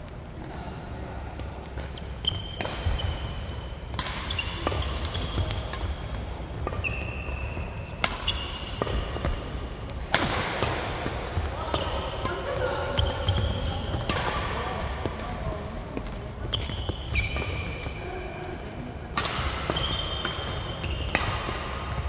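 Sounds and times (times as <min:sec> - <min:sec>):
racket striking shuttlecock: 0:03.9 - 0:06.0, 0:08.0 - 0:09.4, 0:19.1 - 0:21.9.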